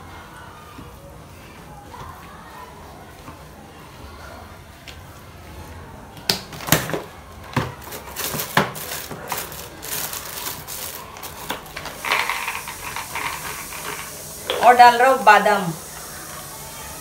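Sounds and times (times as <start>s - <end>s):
peanuts rattling in plastic jar: 7.8s - 14.3s.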